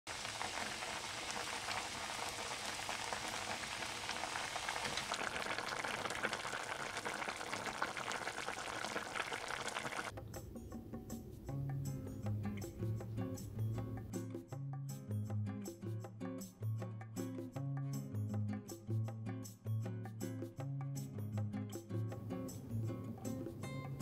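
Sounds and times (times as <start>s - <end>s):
stew bubbling in a pot: 0.1s - 10.1s.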